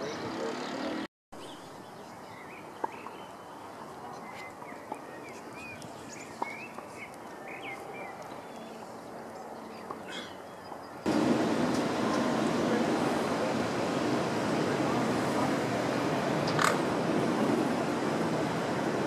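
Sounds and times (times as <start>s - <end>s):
small birds chirping: 0.0s - 11.3s
outdoor background hiss: 1.4s - 19.0s.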